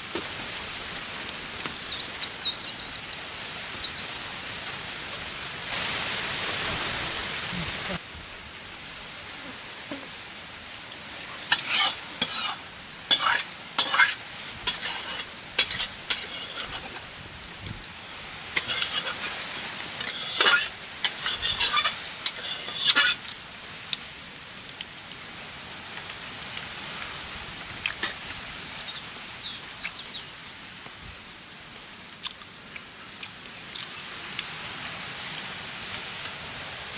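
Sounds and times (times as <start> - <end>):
curry sizzling: 0.0 - 30.8
metal spoon scraping a pan: 11.5 - 17.1, 18.6 - 19.4, 20.0 - 23.3.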